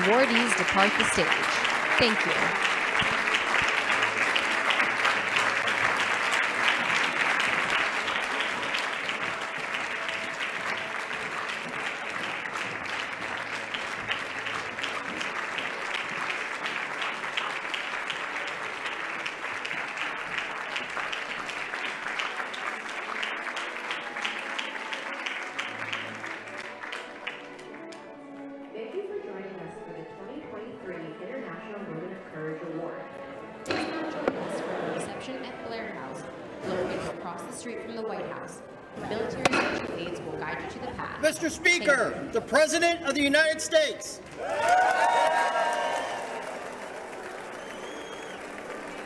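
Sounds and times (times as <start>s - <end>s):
audience applauding: 0.0s - 28.2s, 41.3s - 49.0s.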